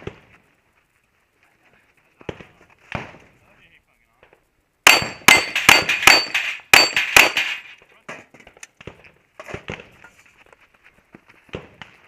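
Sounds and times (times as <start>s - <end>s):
rapid pistol fire: 4.9s - 7.7s
steel targets ringing: 4.9s - 7.8s.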